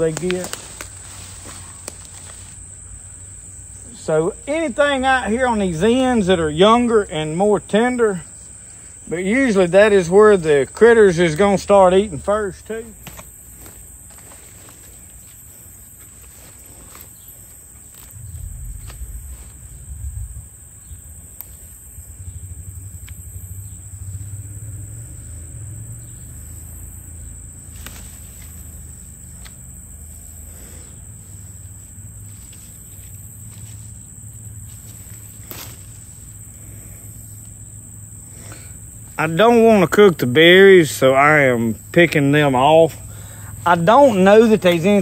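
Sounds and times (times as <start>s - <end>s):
leaves clicking and rustling: 0.0s - 2.8s, 11.3s - 21.8s, 27.6s - 37.6s, 43.6s - 45.0s
insect chorus: 0.0s - 45.0s
low microphone rumble: 18.1s - 21.2s.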